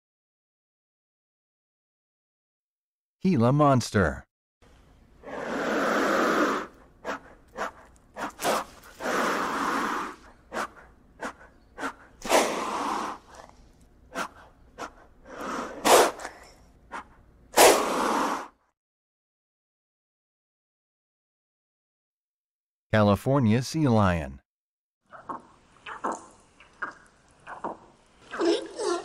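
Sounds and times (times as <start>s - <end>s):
lizard hissing: 5.2s - 13.5s, 14.1s - 18.6s.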